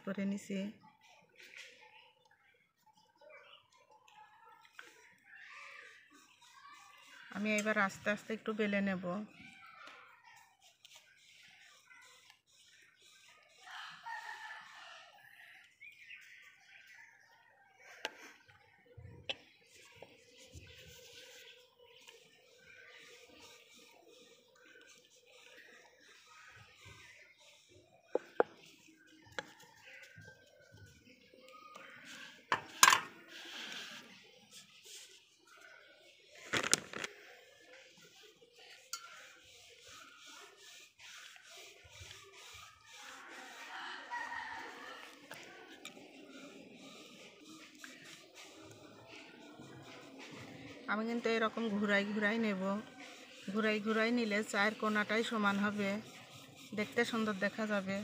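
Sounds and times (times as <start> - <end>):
rolling pin rolling dough: 38.8 - 43.7, 45.0 - 58.0.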